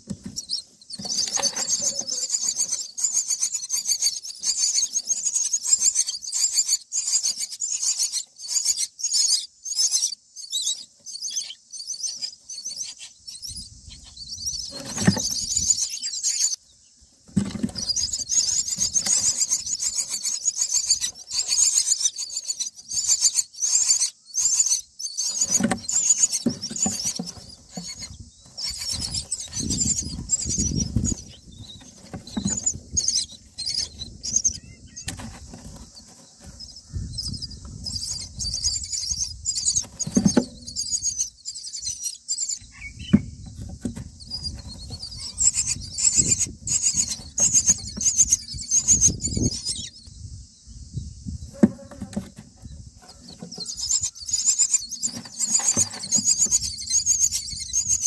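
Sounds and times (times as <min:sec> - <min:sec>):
rustling and bumps in nest: 0:00.0 - 0:05.0, 0:14.5 - 0:16.1, 0:17.2 - 0:22.0, 0:25.2 - 0:41.2, 0:43.0 - 0:49.6, 0:51.4 - 0:57.4
nestlings begging calls: 0:00.0 - 0:50.1, 0:51.5 - 0:58.0.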